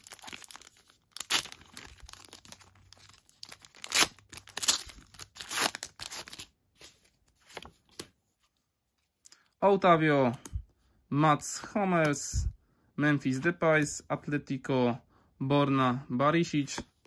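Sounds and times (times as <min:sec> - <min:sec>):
foil wrapper tearing and crinkling: 0:00.0 - 0:06.5.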